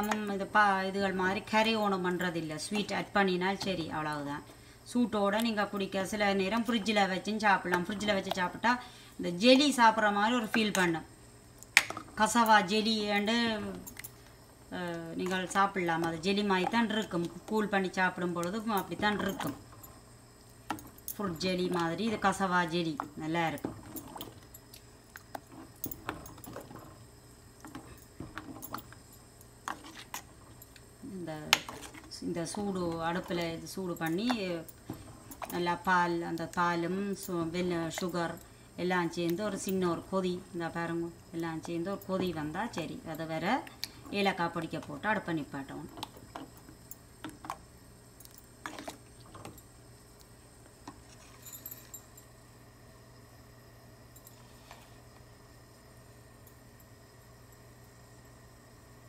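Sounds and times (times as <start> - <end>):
low steady hum: 0.0 - 59.0
spoon swishing thick mixture: 48.6 - 49.4.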